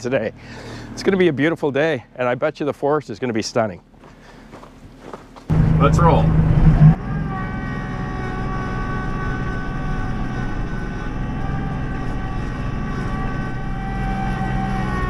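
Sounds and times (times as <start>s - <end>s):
tractor diesel engine running: 5.5s - 15.0s.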